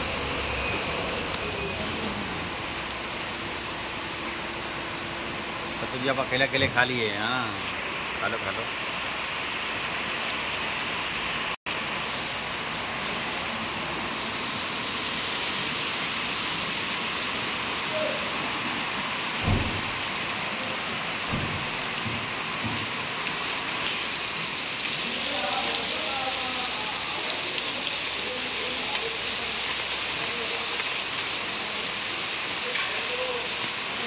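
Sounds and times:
steady hiss: 0:00.0 - 0:34.0
dull knocks: 0:21.3 - 0:23.0.

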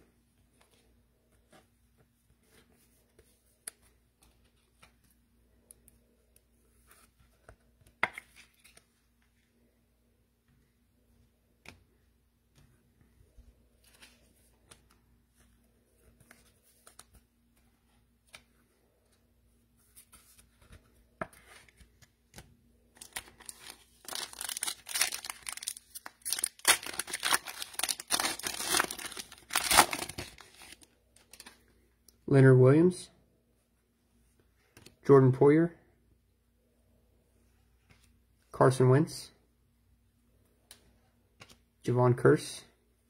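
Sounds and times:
foil wrapper tearing and crackling: 0:23.0 - 0:30.8.

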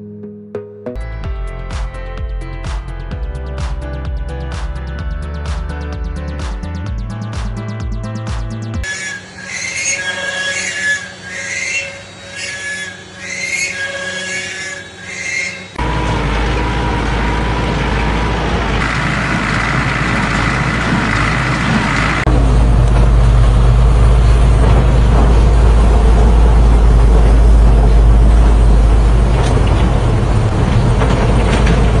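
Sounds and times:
excavator diesel engine drone: 0:07.0 - 0:32.0
tractor and hay baler running: 0:15.7 - 0:32.0.

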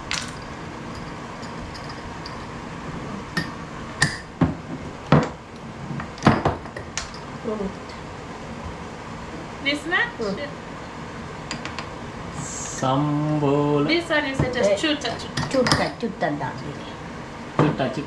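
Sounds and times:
glass jars clinking on worktop: 0:01.0 - 0:02.5.

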